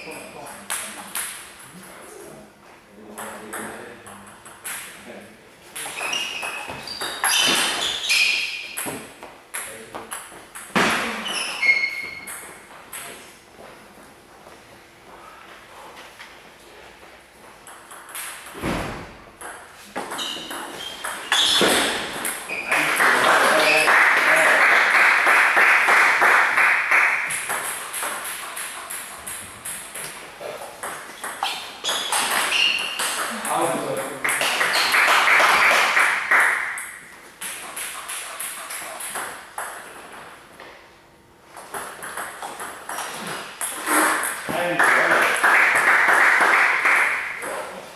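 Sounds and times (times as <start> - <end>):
shoe squeaks: 5.8 - 9.0, 11.0 - 12.5, 20.0 - 22.9, 30.4 - 33.3.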